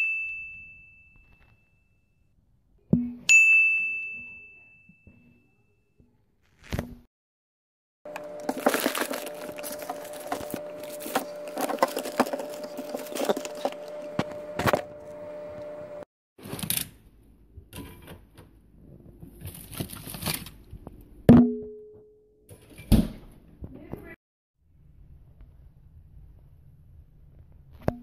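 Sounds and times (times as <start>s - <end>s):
plastic-wrapped food crackling: 8.1s - 14.4s, 19.4s - 20.6s
freezer humming: 8.1s - 16.8s.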